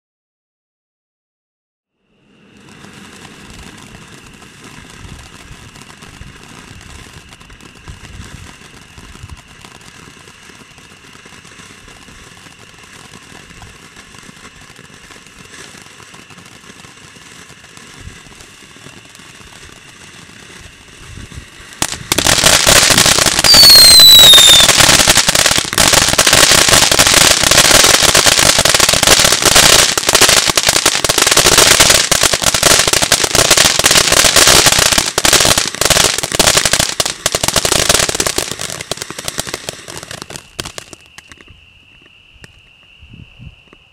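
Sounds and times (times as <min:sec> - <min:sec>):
firework sparks hissing: 0:02.1 - 0:41.8
loud dense crackling: 0:17.6 - 0:41.0
whistle falling in pitch: 0:23.4 - 0:24.9.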